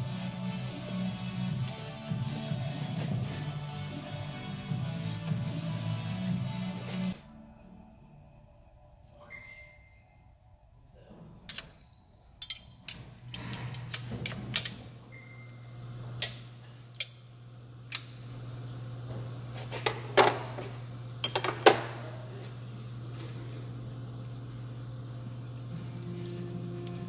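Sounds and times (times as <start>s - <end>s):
steady low hum: 0.0s - 27.0s
wrench clinking on metal bolt: 11.5s - 14.8s, 16.2s - 17.4s, 21.2s - 22.1s.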